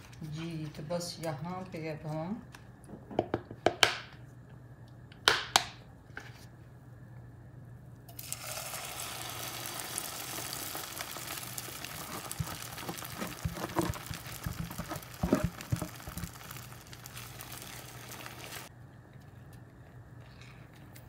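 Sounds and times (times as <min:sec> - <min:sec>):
batter sizzling in hot oil: 0:08.2 - 0:18.7.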